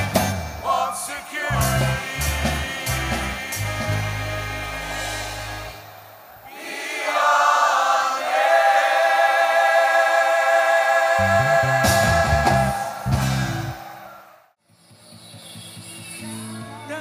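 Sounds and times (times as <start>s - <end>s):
mixed choir singing: 0.6s - 5.7s, 6.4s - 14.2s
low bass accompaniment: 1.5s - 5.8s.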